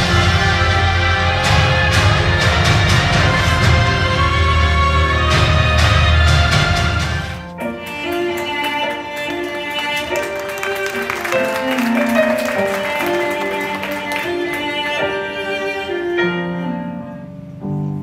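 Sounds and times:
stage-show music: 0:00.0 - 0:18.0.

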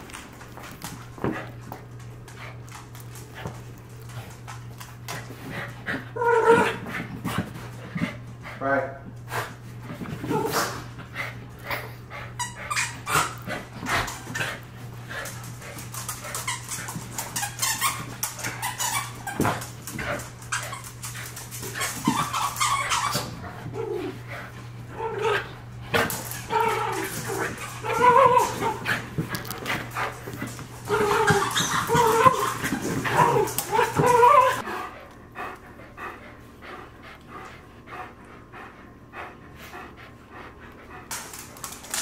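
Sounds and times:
dogs whimpering and barking: 0:06.1 - 0:06.8, 0:21.8 - 0:24.3, 0:26.2 - 0:29.0, 0:30.7 - 0:34.7.

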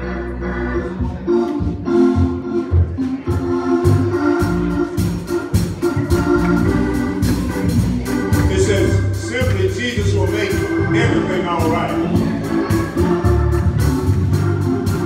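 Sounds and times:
organ playing held chords: 0:00.0 - 0:15.0
drums and cymbals: 0:04.4 - 0:15.0.

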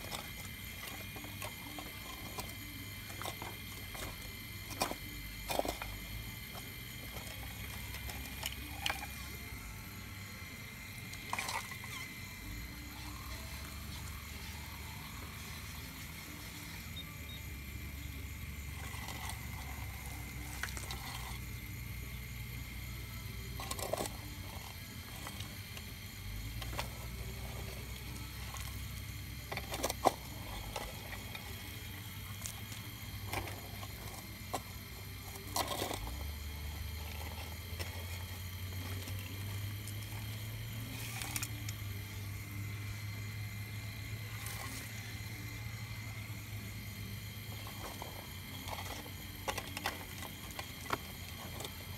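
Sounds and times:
bucket scraping shale: 0:00.0 - 0:09.5, 0:11.0 - 0:12.3, 0:18.6 - 0:21.6, 0:26.4 - 0:42.3
low motor hum: 0:00.0 - 0:51.9.

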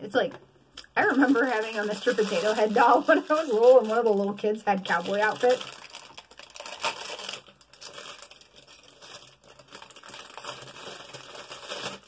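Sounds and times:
plastic wrapper crinkling and tearing: 0:00.8 - 0:12.0.

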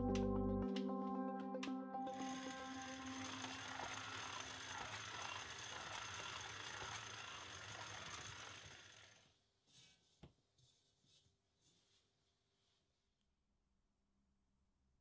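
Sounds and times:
stand mixer motor hum and whine: 0:02.1 - 0:09.2.

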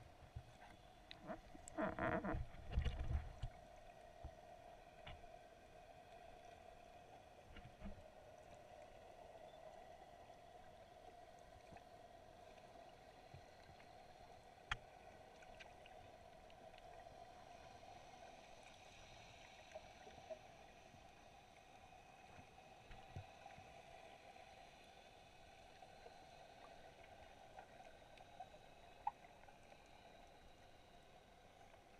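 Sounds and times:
underwater low hum: 0:00.0 - 0:31.9
small underwater clicks: 0:00.3 - 0:05.3, 0:11.6 - 0:17.9, 0:25.3 - 0:30.6.

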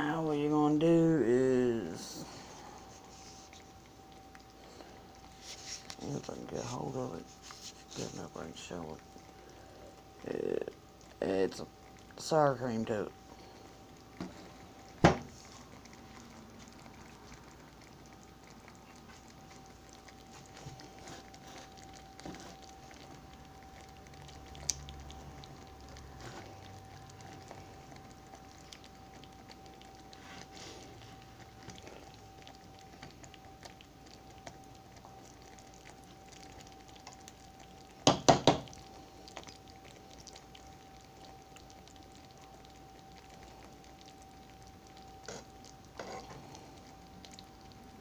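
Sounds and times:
sauce bubbling and crackling: 0:00.0 - 0:48.0
steady high hum: 0:00.0 - 0:48.0.

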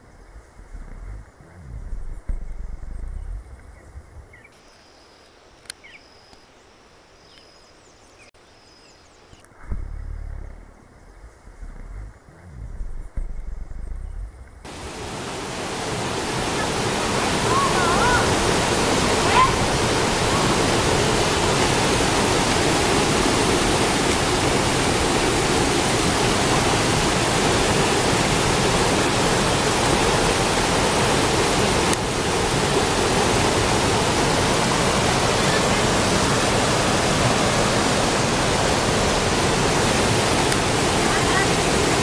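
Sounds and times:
waterfall and rapids roaring: 0:14.6 - 0:42.0.

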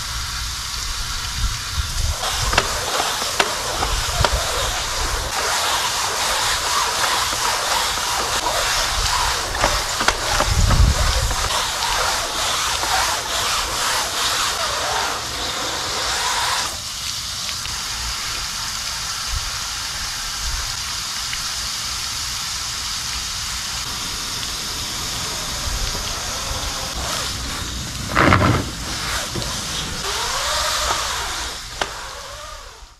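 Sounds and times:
brushes scrubbing wet mesh screen: 0:02.0 - 0:16.9, 0:24.0 - 0:32.8
squeaky rubbing: 0:02.1 - 0:16.8, 0:26.0 - 0:32.8.

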